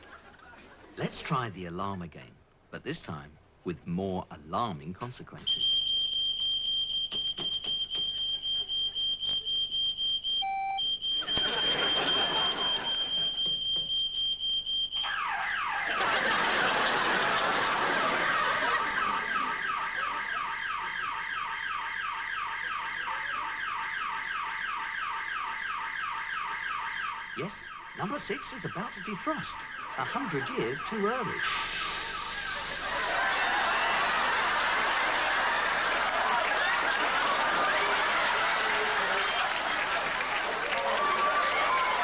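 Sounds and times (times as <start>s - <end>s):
high beeping alarm with chirps: 5.5s - 17.0s, 19.0s - 32.8s
falling-sweep siren: 10.4s - 36.9s
rushing hiss: 31.4s - 33.2s.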